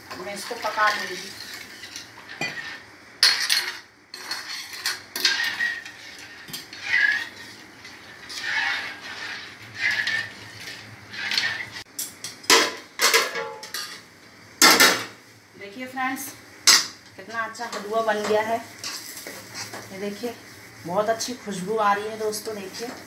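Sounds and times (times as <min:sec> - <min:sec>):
spoon stirring and scraping pan: 0:00.0 - 0:14.1, 0:16.7 - 0:23.0
metal plate clanking on pan: 0:12.5 - 0:14.0.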